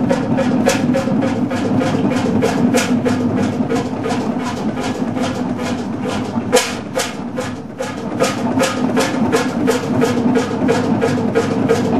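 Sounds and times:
marine engine exhaust beats: 0:00.0 - 0:11.9.

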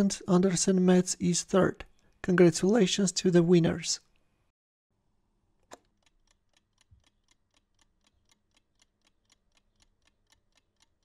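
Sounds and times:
clock ticking: 0:05.7 - 0:11.0.

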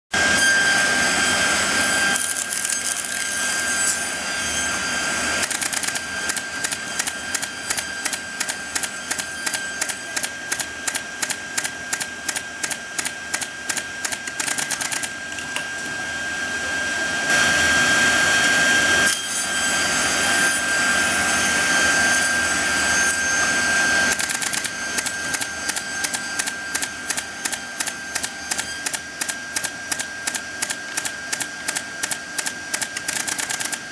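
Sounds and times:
machine whining: 0:00.2 - 0:33.9
pneumatic nailer clicks: 0:02.2 - 0:03.3, 0:05.4 - 0:15.1, 0:24.1 - 0:33.9.

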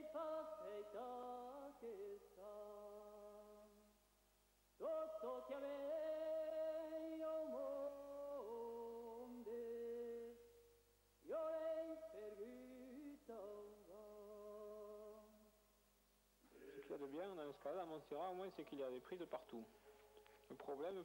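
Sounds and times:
a cappella singing voices: 0:00.0 - 0:04.0, 0:04.8 - 0:15.6.

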